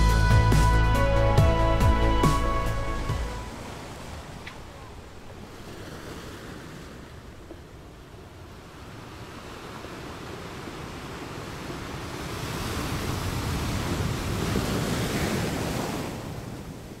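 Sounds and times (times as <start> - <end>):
ocean waves surging: 0.0 - 17.0.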